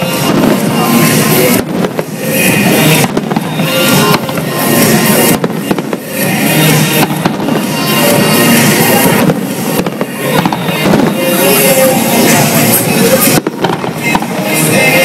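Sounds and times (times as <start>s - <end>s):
fireworks bursting: 0.0s - 15.0s
music playing: 0.0s - 15.0s.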